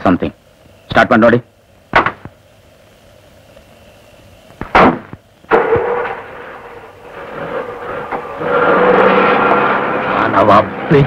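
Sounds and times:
car engine starting and running: 5.5 - 11.0.

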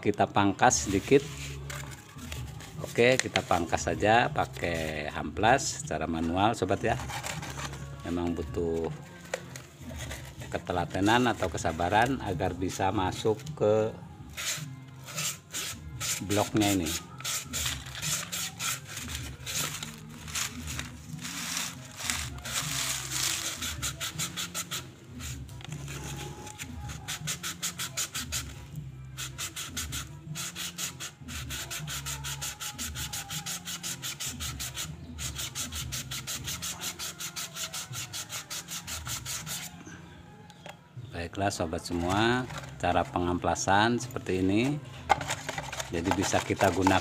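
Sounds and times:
sandpaper rubbing on metal piston: 0.7 - 13.5, 14.2 - 39.8, 41.9 - 43.4, 45.1 - 47.0.

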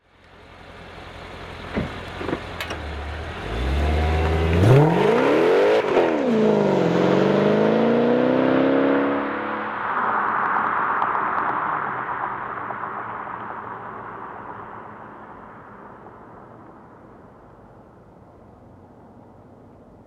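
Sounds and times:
car engine revving and accelerating: 3.0 - 14.6.

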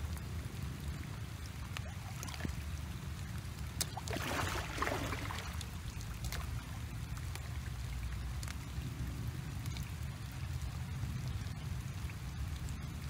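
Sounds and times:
steady low rumble: 0.0 - 13.0
hands splashing in muddy water: 3.8 - 6.5.

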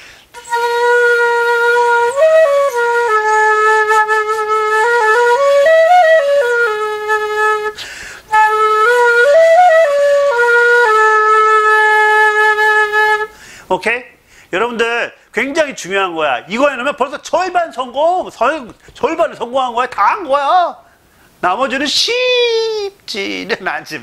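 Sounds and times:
quick breath: 0.0 - 0.3, 7.8 - 8.3, 13.3 - 14.5
notched flute melody: 0.3 - 13.4.

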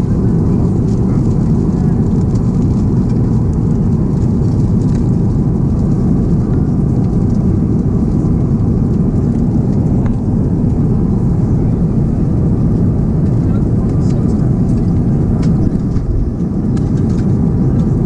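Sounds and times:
aircraft cabin roar: 0.0 - 18.0.

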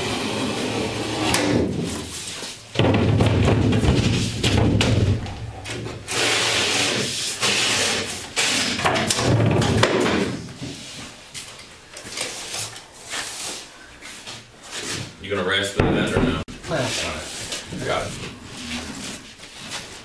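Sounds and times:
drywall sheets scraping together: 6.0 - 8.9.

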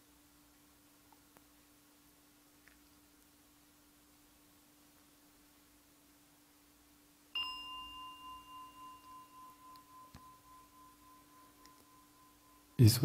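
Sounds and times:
faint steady hum: 0.0 - 13.0
singing bowl ringing: 7.3 - 13.0.

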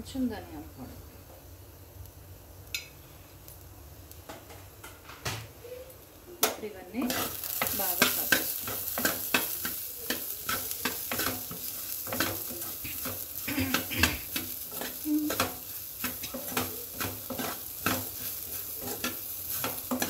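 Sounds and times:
light sizzle in pan: 0.0 - 20.0
spatula scraping and knocking pan: 7.0 - 20.0.

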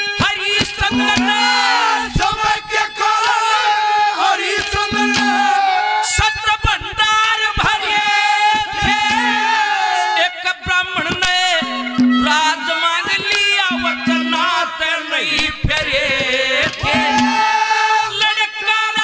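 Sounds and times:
man singing into microphone: 0.0 - 19.0
hand drum strikes: 0.6 - 2.2, 4.8 - 5.6, 8.8 - 9.4, 11.1 - 14.6, 15.4 - 17.5
held instrumental notes: 0.6 - 2.5, 4.7 - 6.2, 8.8 - 9.8, 11.6 - 14.8, 16.7 - 17.7.

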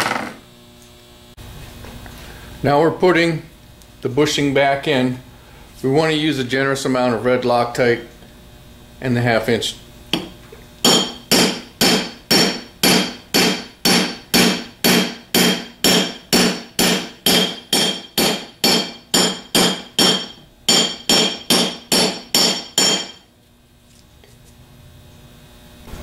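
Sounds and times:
hammer tapping on metal: 10.1 - 23.2.

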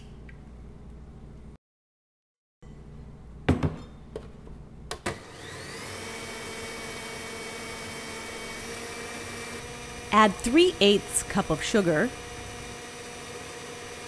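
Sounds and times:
stand mixer motor whining: 5.1 - 14.0.

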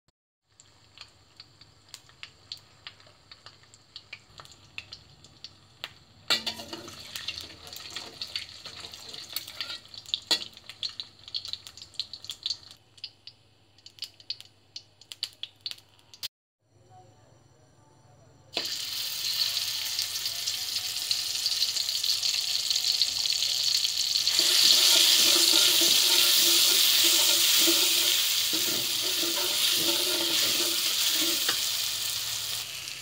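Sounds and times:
egg frying in hot oil: 0.4 - 16.3, 18.6 - 33.0
metal spatula scraping: 6.3 - 7.6, 8.7 - 10.4, 24.3 - 31.9.

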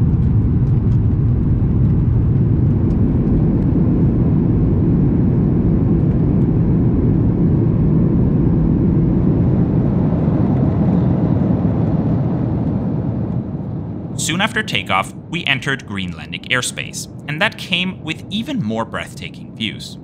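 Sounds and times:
jet engine hum in cabin: 0.0 - 20.0.

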